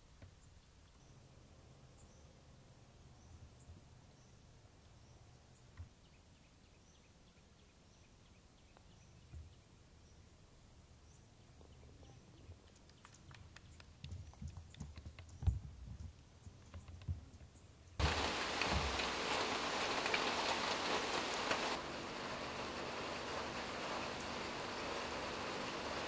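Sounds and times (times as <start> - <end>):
light ticks: 12.6 - 17.2
rain falling: 18.0 - 26.0.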